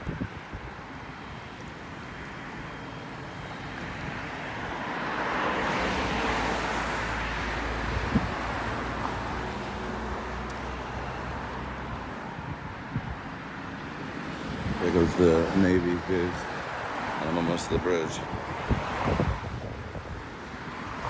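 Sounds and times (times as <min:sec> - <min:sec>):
steady road noise: 0:00.0 - 0:21.0
vehicle passing: 0:02.3 - 0:12.3.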